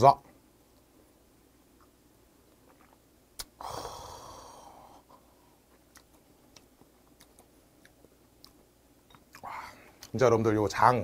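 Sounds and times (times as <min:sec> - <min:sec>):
chewing: 0:02.6 - 0:03.0, 0:05.7 - 0:10.1.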